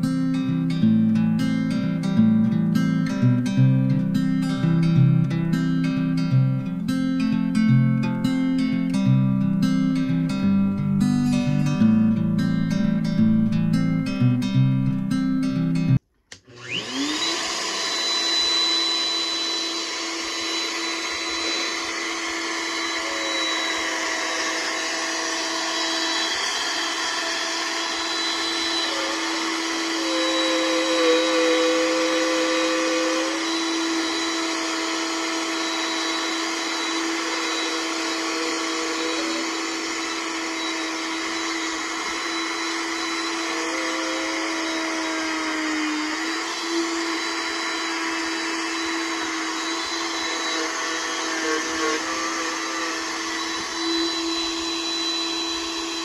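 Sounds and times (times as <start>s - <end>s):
router bit cutting wood: 16.3s - 56.0s
router motor whine: 16.3s - 56.0s.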